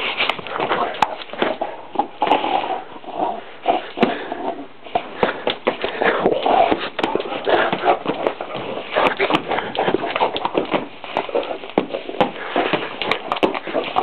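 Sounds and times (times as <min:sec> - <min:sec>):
knocks and scuffs on wooden floor: 0:05.0 - 0:14.0.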